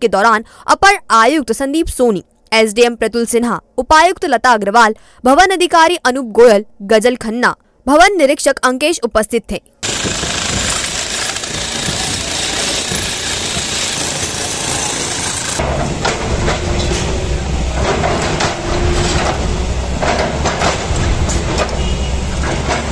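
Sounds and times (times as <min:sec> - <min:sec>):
excavator engine rumbling: 0:09.8 - 0:22.9.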